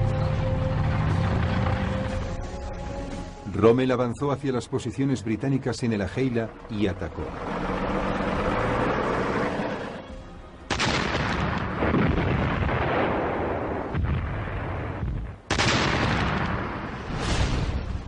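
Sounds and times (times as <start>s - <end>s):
artillery blasts: 10.7s - 18.0s.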